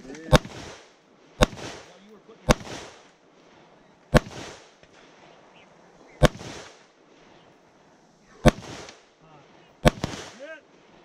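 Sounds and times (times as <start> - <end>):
gunshots with echo: 0.3 - 3.1, 4.1 - 4.8, 6.2 - 6.8, 8.4 - 9.0, 9.8 - 10.6.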